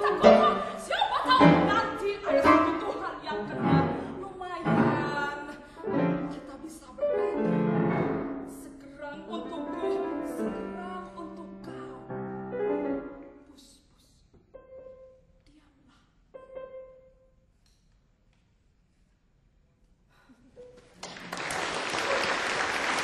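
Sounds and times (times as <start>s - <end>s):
piano chords: 0.0s - 13.5s, 14.5s - 15.4s, 16.3s - 17.4s.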